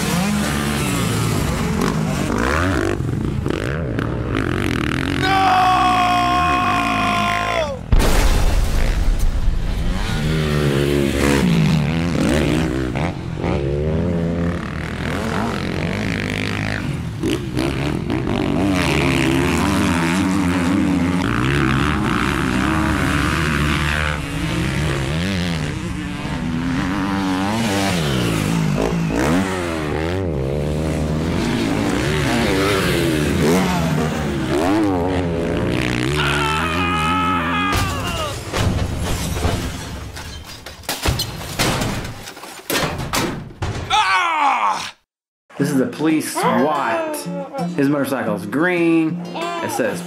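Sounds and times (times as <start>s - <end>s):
dirt bike engines revving: 0.0s - 8.0s, 9.7s - 38.3s.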